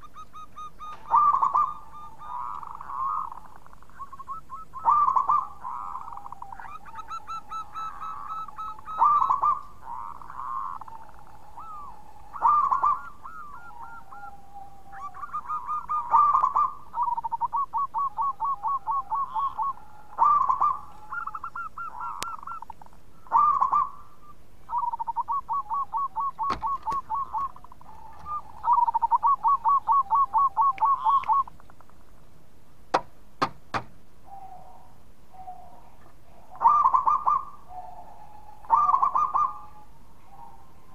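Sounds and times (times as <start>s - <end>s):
dove cooing: 0.0s - 32.1s, 32.9s - 40.9s
sharp clicks: 32.9s - 34.0s.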